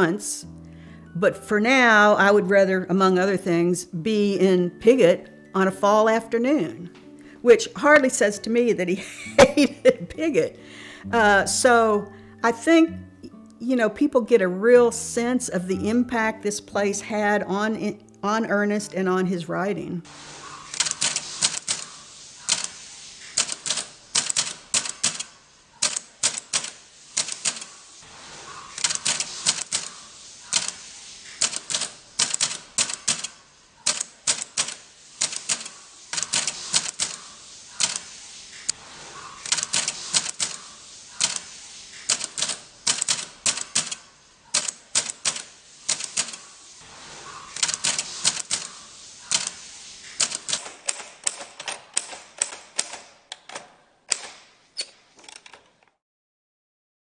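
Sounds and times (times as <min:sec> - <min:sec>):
typewriter key strikes: 0:50.2 - 0:54.4.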